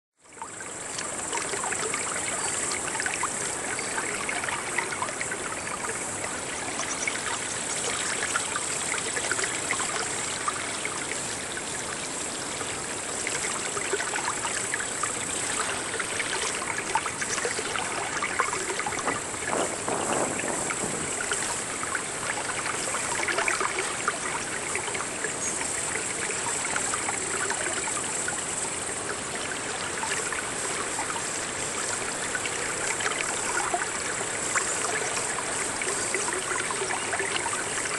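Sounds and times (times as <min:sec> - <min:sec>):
water pouring from fountain spout: 0:00.3 - 0:37.9
water splashing into trough: 0:16.2 - 0:23.8.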